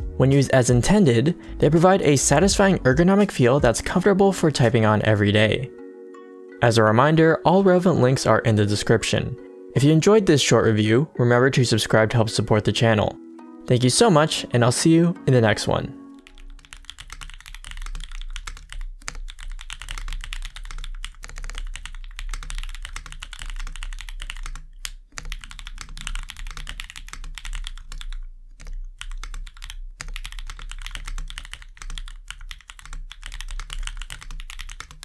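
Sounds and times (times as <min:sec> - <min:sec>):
typing on mechanical keyboard: 0:16.2 - 0:35.0.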